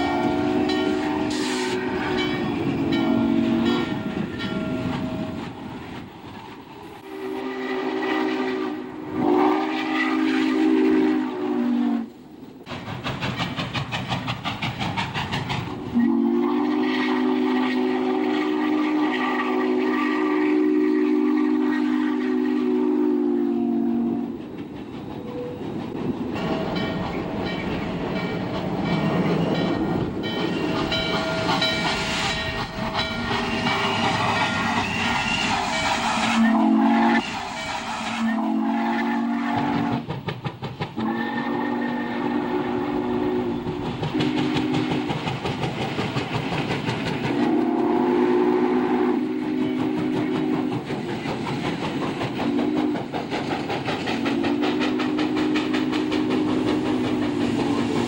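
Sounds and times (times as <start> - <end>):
steam whistle blowing: 0.0 - 4.2, 7.0 - 12.2, 15.9 - 24.4, 31.6 - 40.1, 41.0 - 45.2, 47.3 - 50.7, 54.3 - 57.0
steam locomotive chuffing: 0.0 - 58.0.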